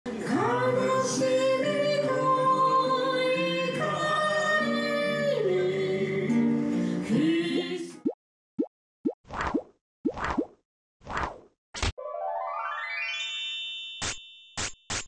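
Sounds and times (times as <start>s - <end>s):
acoustic guitar: 0.1s - 8.0s
man and woman singing in harmony: 0.1s - 8.0s.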